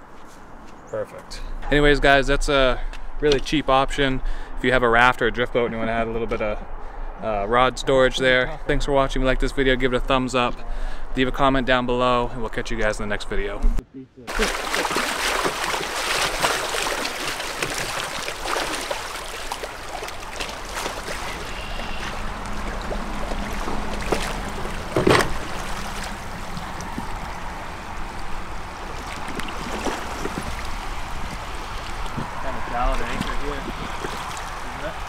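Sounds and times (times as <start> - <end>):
river water lapping around raft: 14.3 - 35.0.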